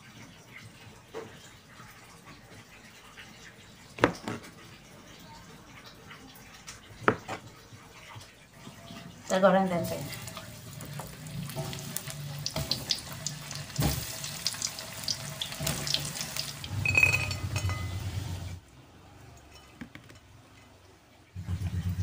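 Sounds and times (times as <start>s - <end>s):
oil sizzling and crackling: 9.2s - 18.6s.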